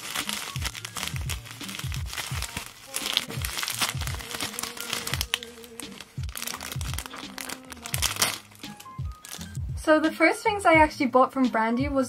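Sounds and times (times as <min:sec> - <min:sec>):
bubble wrap and plastic crinkling: 0:00.0 - 0:09.6
background music with beat: 0:00.0 - 0:12.0.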